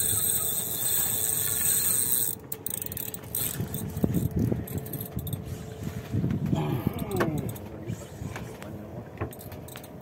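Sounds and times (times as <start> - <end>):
fishing gear clicking: 0.0 - 5.4.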